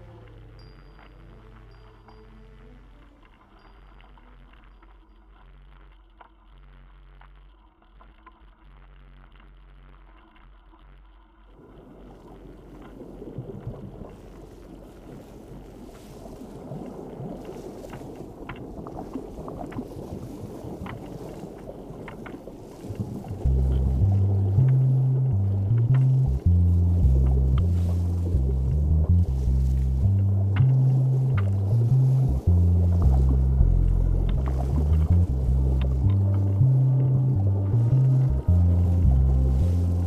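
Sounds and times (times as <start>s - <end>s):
wind: 0.0s - 6.3s, 11.6s - 40.0s
faint music: 0.0s - 10.3s, 17.5s - 40.0s
bike tyres rumbling on gravel: 11.8s - 40.0s.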